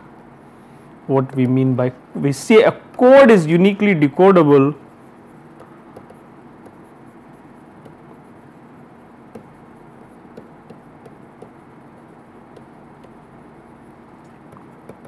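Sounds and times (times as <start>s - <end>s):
low room hum: 0.0s - 15.0s
stylus tapping on tablet screen: 5.5s - 6.9s, 7.8s - 8.1s, 9.3s - 11.7s, 12.5s - 13.3s, 14.4s - 15.0s.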